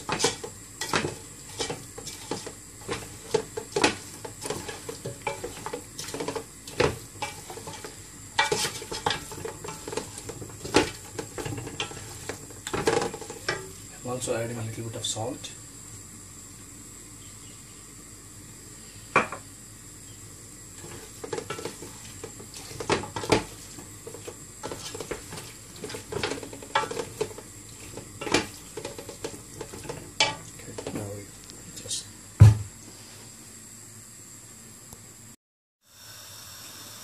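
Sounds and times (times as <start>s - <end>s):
wooden spoon stirring thick mixture: 0.0s - 14.0s, 20.8s - 31.4s.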